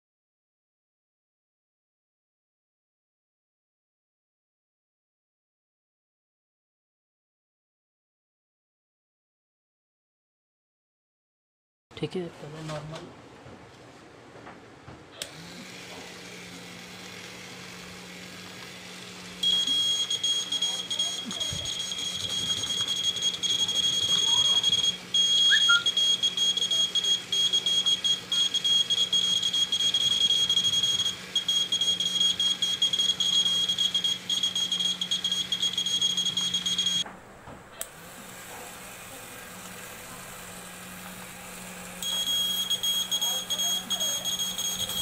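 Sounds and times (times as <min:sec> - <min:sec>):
high-pitched buzzer beep: 0:19.4 - 0:37.0, 0:42.0 - 0:45.0.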